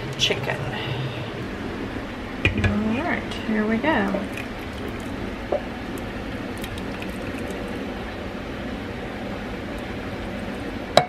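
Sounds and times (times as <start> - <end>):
thick sauce pouring: 4.2 - 8.2.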